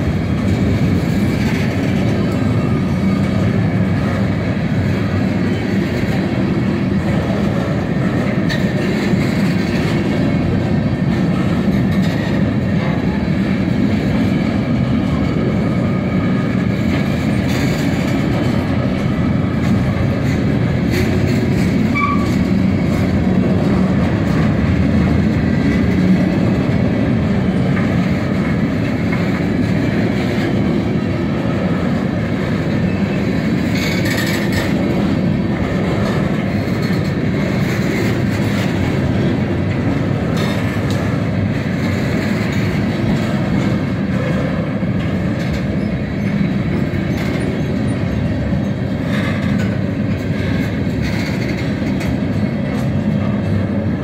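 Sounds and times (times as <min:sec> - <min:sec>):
train wheels clacking: 0:00.0 - 0:54.0
train wheels rumbling on rails: 0:00.0 - 0:54.0.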